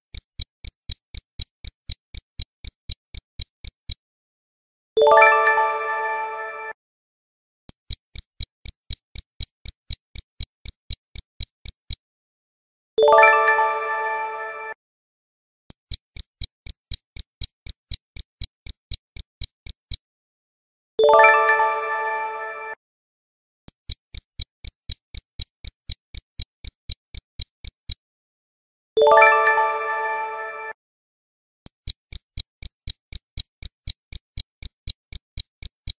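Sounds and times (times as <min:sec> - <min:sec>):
stopwatch ticking: 0:00.0 - 0:04.0, 0:07.7 - 0:12.0, 0:15.7 - 0:20.0, 0:23.7 - 0:28.0, 0:31.7 - 0:35.9.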